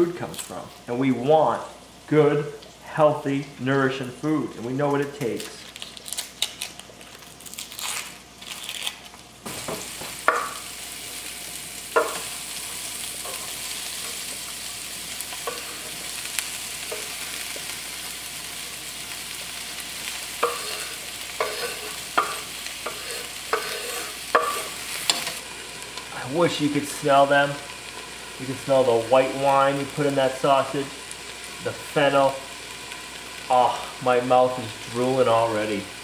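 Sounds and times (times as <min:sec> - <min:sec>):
peppers sizzling in a skillet: 0:00.0 - 0:36.0
onion skin crackling: 0:05.2 - 0:09.4
knife scraping cutting board: 0:20.4 - 0:25.4.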